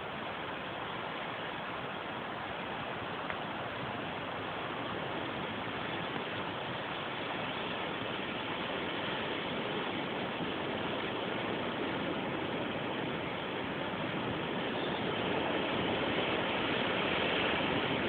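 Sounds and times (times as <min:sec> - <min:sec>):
storm wind rushing: 0:07.5 - 0:18.0.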